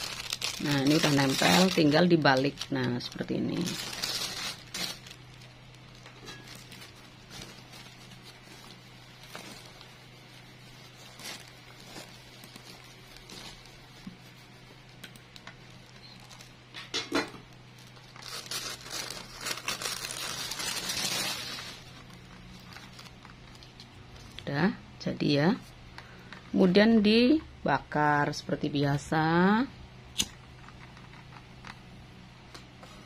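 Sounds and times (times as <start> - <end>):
plastic sheeting crinkling: 0.0 - 16.7, 17.6 - 24.3
low steady hum: 0.0 - 33.0.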